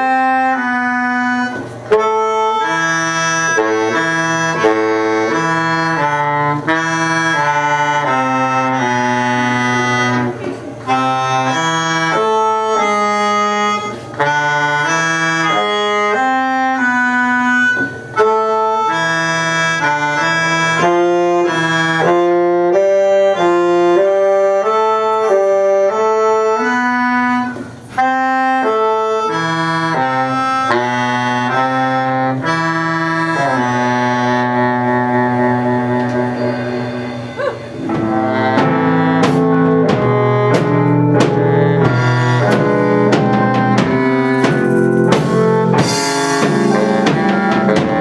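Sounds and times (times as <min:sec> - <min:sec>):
live band music: 0:00.0 - 0:48.0
reedy wind instrument melody: 0:00.0 - 0:48.0.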